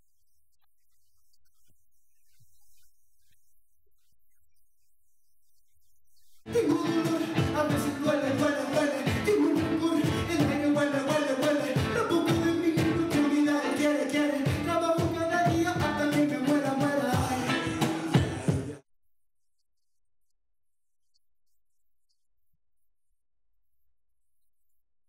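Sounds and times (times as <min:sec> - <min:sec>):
live band with singer: 0:06.5 - 0:18.8.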